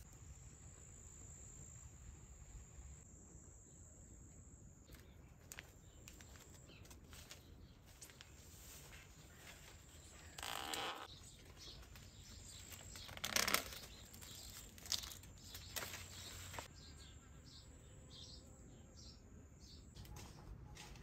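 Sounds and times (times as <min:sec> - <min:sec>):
corn leaves rustling: 0:04.9 - 0:16.7.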